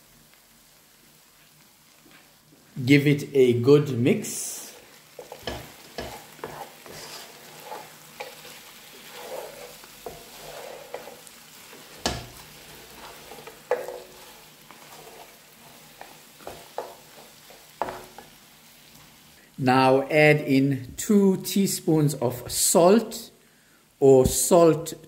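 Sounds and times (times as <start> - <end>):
meat sizzling in a pan: 0.0 - 19.6
wooden spoon scraping a pan: 4.2 - 19.3.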